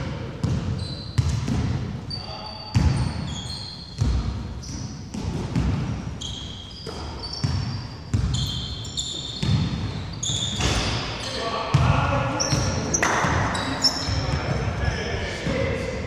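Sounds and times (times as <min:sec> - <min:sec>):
basketball bouncing on wooden floor: 0:00.4 - 0:01.8, 0:04.0 - 0:06.0
sneakers squeaking on floor: 0:00.4 - 0:14.8.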